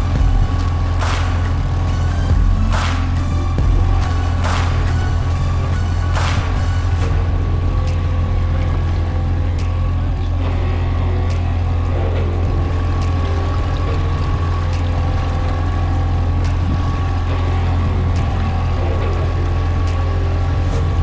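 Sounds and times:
boat motor droning: 0.0s - 21.0s.

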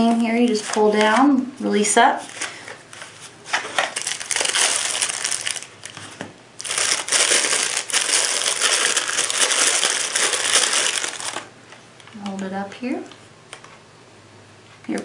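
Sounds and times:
plastic bag crinkling: 2.2s - 11.5s.

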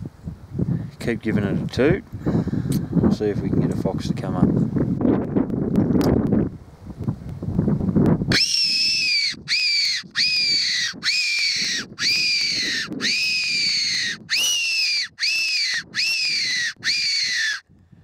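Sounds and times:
whistle squeals sliding down: 8.3s - 17.6s.

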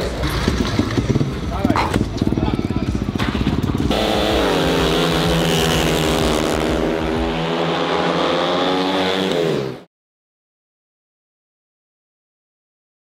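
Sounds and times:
motorcycle engines racing: 0.0s - 9.9s.

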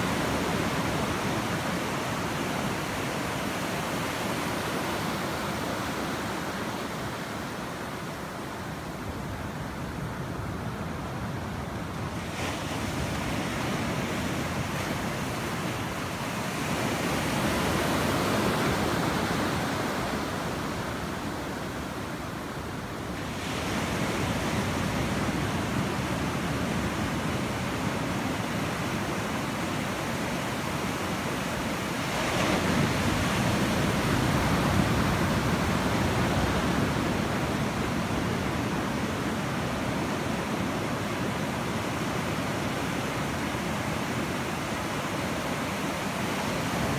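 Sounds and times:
ocean surf breaking: 11.6s - 46.9s.

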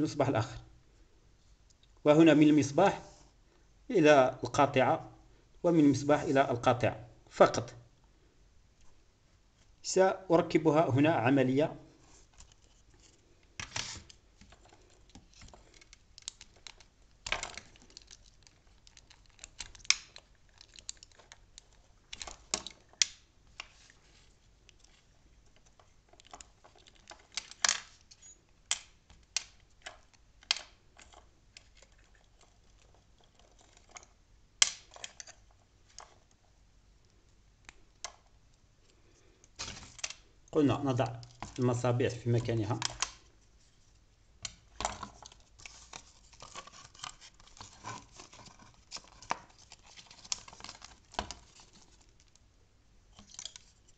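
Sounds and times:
hands handling wires and plastic parts: 11.9s - 53.9s.

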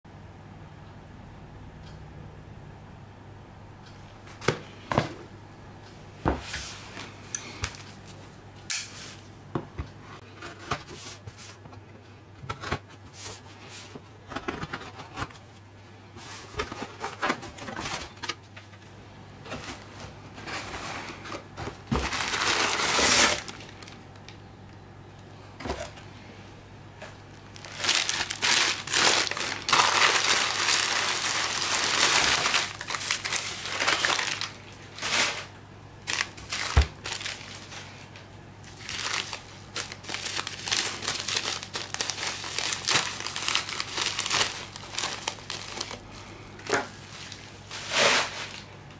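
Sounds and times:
crinkling tissue paper and bubble wrap: 19.5s - 24.2s, 27.1s - 48.8s.

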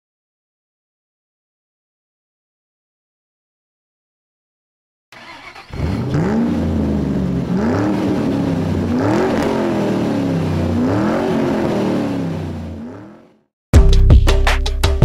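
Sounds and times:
car engine revving: 5.2s - 13.5s.

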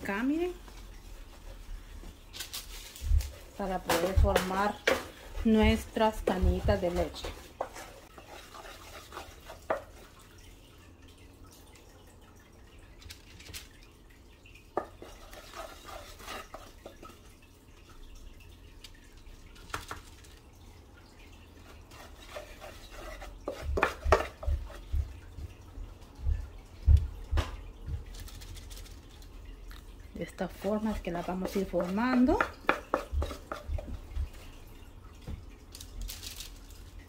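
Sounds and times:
wooden spoon scraping steel pan: 3.9s - 10.0s, 14.8s - 17.0s, 21.8s - 24.8s, 30.6s - 33.9s.

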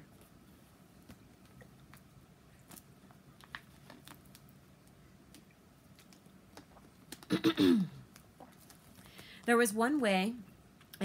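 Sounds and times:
plastic water bottle crinkling: 1.4s - 4.5s.

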